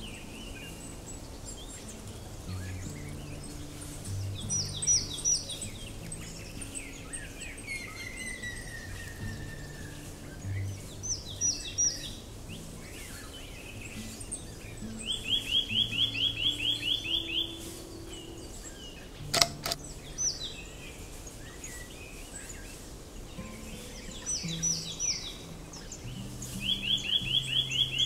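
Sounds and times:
faint low music: 0.0 - 28.0
small birds chirping: 0.0 - 28.0
sharp clicks: 19.2 - 19.9.

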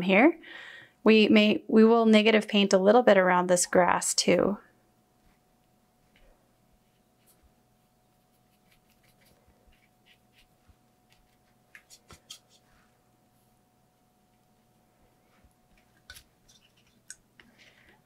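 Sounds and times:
paintbrush scratching on paper: 6.8 - 12.7.

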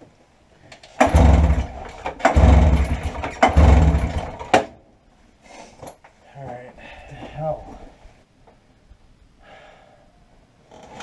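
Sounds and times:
recoil starter pull: 0.8 - 4.7
snowmobile engine cranking: 0.9 - 4.7.

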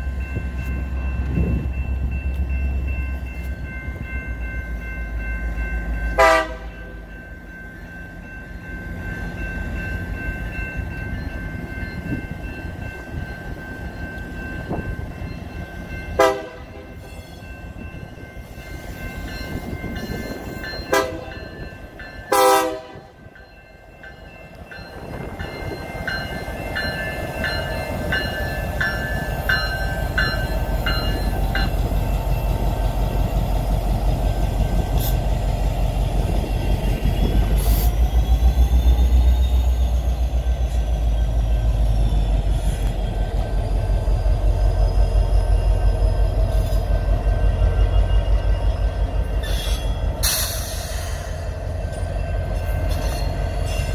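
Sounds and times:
diesel locomotive engine passing: 0.0 - 53.9
locomotive air horn blasts: 6.2 - 6.7, 16.2 - 17.0, 20.9 - 21.3, 22.3 - 23.2
bell ringing: 23.1 - 32.8.

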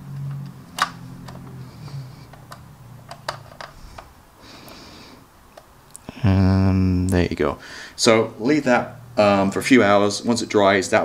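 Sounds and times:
faint low hum: 0.0 - 11.0
hard plastic clicks and taps: 0.8 - 4.1.

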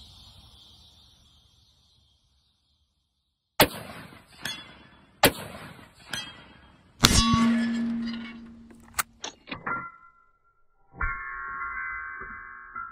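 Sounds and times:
rifle shots: 3.6 - 4.5, 5.2 - 5.9, 7.0 - 8.0
bullet clanging on steel target: 4.3 - 5.0, 5.9 - 10.1.

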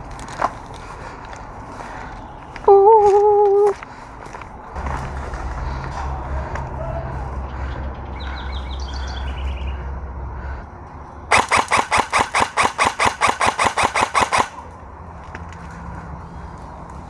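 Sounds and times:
airsoft rifle full-auto burst: 11.3 - 14.6.

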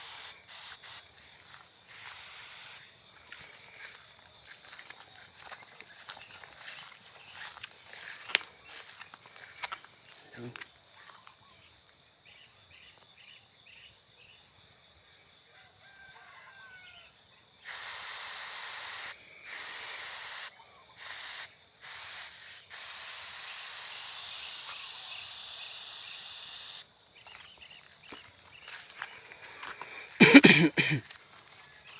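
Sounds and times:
pressure sprayer hissing: 0.0 - 3.9, 17.6 - 26.9.

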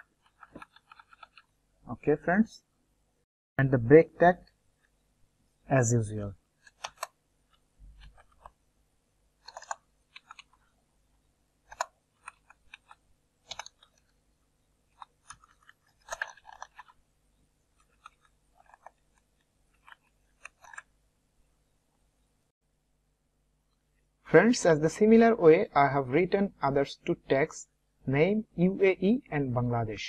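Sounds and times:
mouse clicks: 6.7 - 7.2, 9.4 - 10.6, 11.7 - 14.1.

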